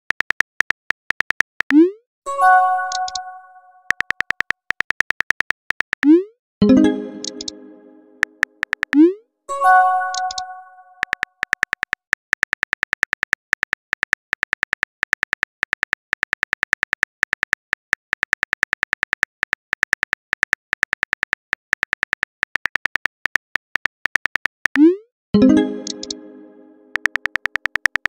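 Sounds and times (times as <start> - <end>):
phone keyboard typing clicks: 0.1 - 1.8, 2.9 - 3.3, 3.9 - 6.2, 7.2 - 7.6, 8.2 - 9.1, 10.0 - 24.9, 25.5 - 26.2, 26.9 - 28.0.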